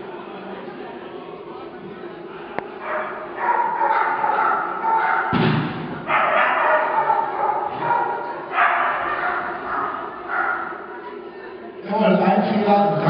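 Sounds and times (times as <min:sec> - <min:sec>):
dog barking: 0:02.8 - 0:05.4, 0:06.1 - 0:10.9
heavy thud: 0:05.3 - 0:06.1.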